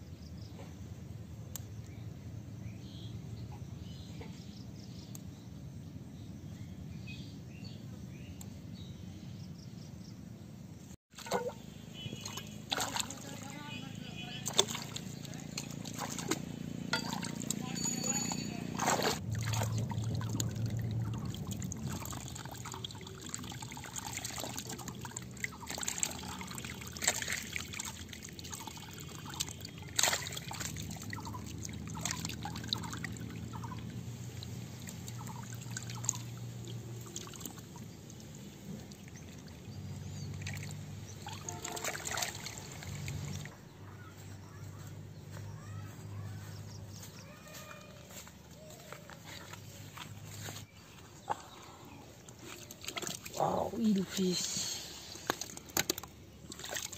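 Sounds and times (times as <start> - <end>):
sharp water splashes: 11.1 - 43.6, 52.3 - 54.3, 55.0 - 56.9
water trickling through channel: 11.1 - 43.7, 45.5 - 56.9
low hum: 13.9 - 24.0.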